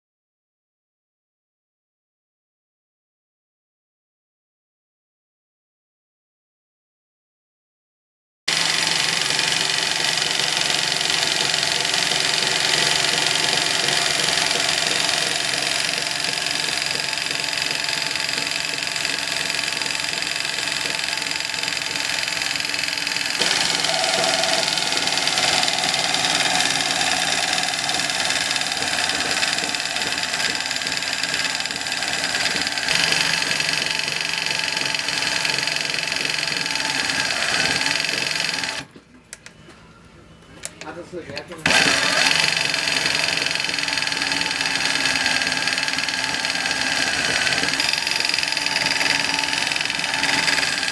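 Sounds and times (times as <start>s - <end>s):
sewing machine running: 8.5s - 38.9s, 41.6s - 50.9s.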